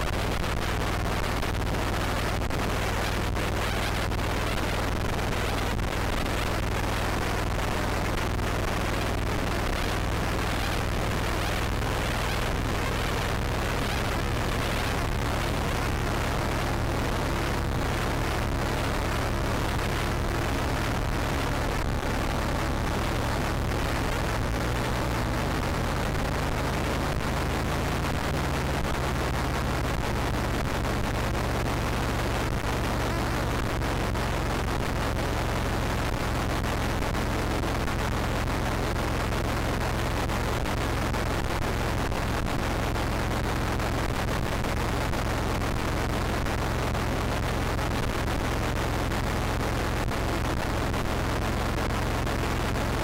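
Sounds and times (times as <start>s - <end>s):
dense wall of noise: 0.0s - 53.0s
low steady hum: 0.0s - 53.0s.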